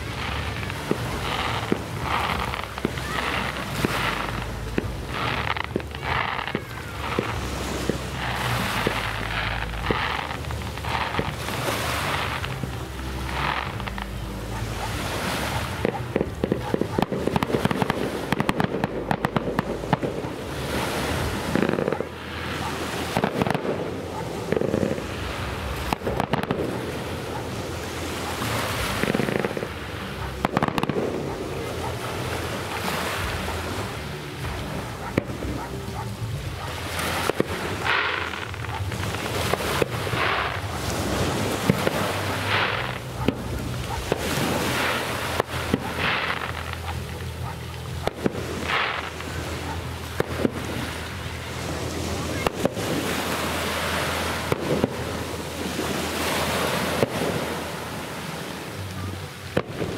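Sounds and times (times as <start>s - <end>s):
fireworks crackling: 0.0s - 59.9s
firework shells booming: 30.4s - 31.7s, 54.4s - 55.9s.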